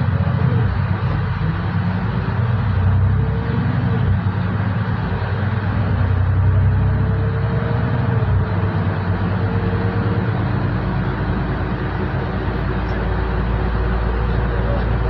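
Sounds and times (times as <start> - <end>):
bus engine drone: 0.0 - 15.0
road noise: 0.0 - 15.0.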